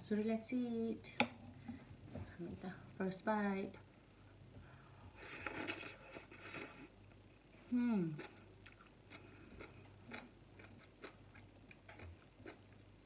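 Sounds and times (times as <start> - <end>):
person chewing noodles: 8.1 - 13.0.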